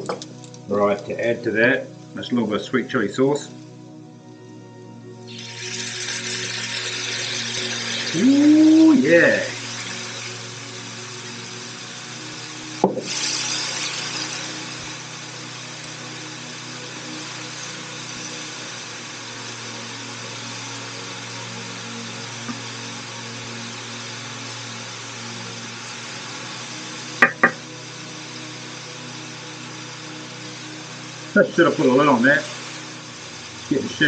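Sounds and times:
sauce sizzling in a pan: 5.3s - 34.0s
sharp knocks: 27.2s - 27.6s.

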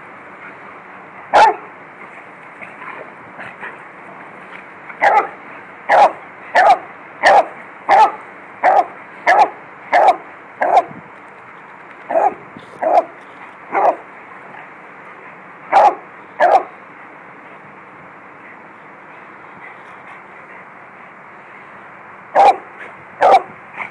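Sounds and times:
dog barking: 1.3s - 1.7s, 5.0s - 10.9s, 12.1s - 14.0s, 15.7s - 16.7s, 22.4s - 23.5s.

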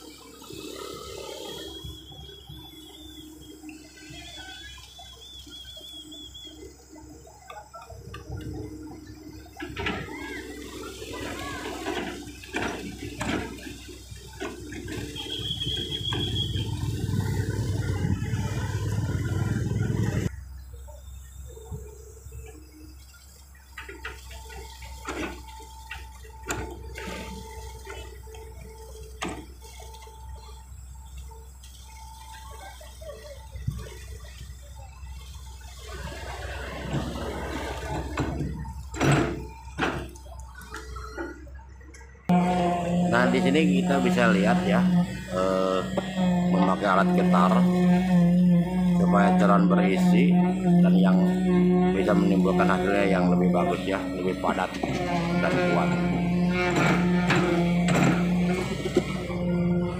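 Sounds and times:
high warbling chirp: 0.0s - 12.6s, 13.8s - 23.8s
excavator diesel engine running: 0.0s - 59.9s.

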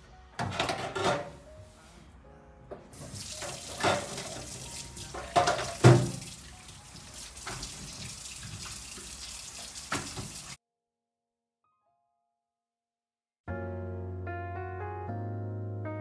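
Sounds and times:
cloth wiping a sink: 1.6s - 2.0s
water running in a metal sink: 3.0s - 10.6s
knocks against a sink: 5.2s - 6.3s, 9.9s - 10.4s.

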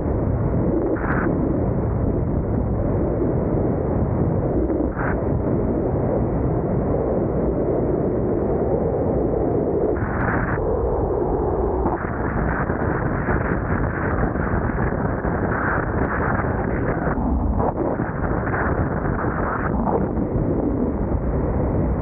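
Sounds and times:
wind buffeting microphone: 0.0s - 22.0s.

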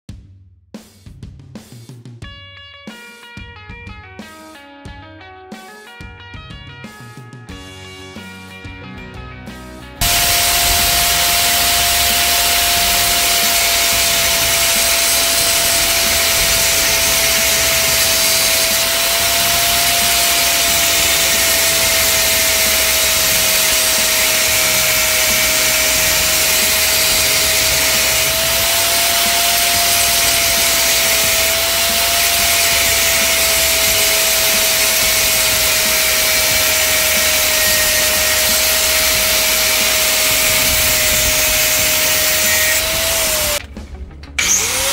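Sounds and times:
angle grinder cutting metal: 10.0s - 43.6s, 44.4s - 44.9s.

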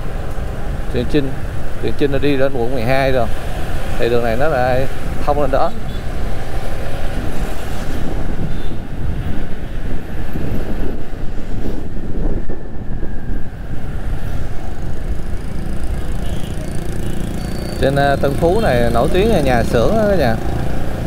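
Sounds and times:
engine and road rumble: 0.0s - 21.0s
wind buffeting microphone: 4.9s - 17.4s.

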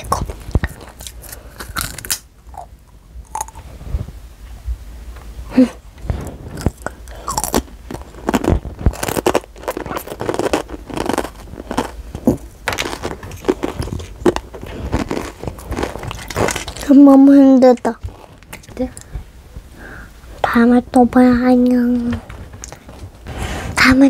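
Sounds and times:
child crunching chips: 0.0s - 3.6s, 6.2s - 19.0s.

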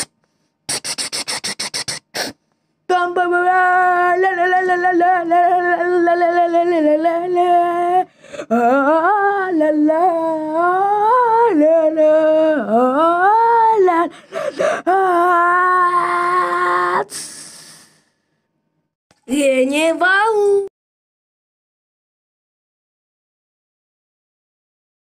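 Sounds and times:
person humming wordless tune: 0.7s - 2.3s, 2.9s - 18.0s.

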